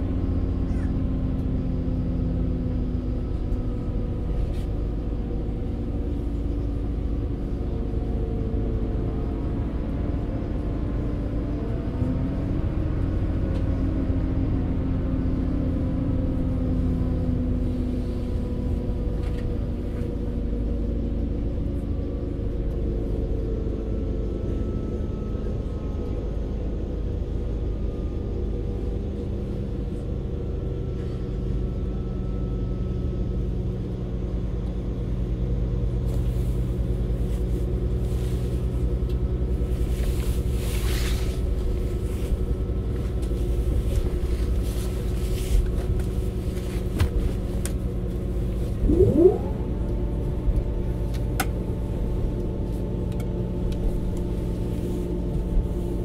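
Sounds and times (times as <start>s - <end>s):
train engine and wheels rumble: 0.0s - 56.0s
engine tones: 48.8s - 51.2s.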